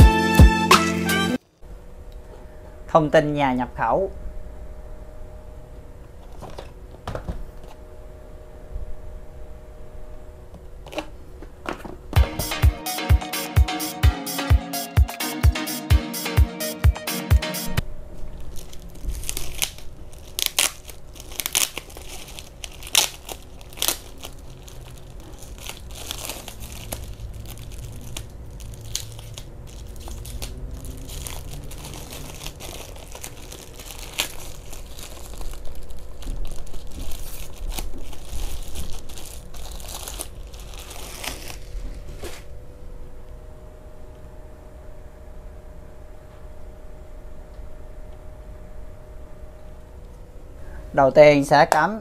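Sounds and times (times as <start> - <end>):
plastic bag crinkling: 18.2 - 42.4.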